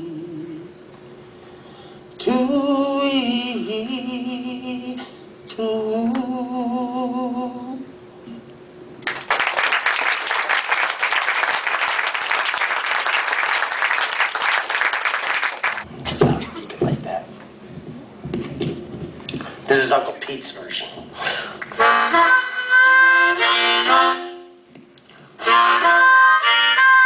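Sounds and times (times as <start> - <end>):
audience applauding: 9.0 - 15.9.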